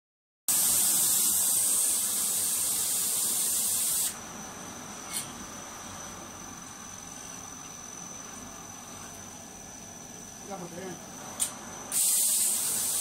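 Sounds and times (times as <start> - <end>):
spray gun hissing: 0.5 - 4.2, 11.9 - 13.0
machine hum with high whine: 0.5 - 13.0.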